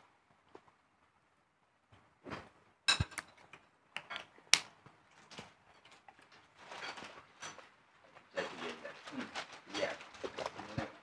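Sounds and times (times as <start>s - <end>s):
spoons clinking on plates: 2.9s - 4.3s.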